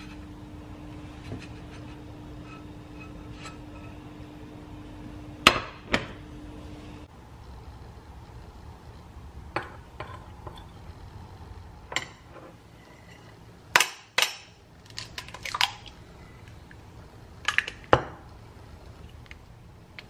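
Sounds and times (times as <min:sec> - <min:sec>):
egg cracking over bowl: 0:13.7 - 0:16.8, 0:17.4 - 0:18.0.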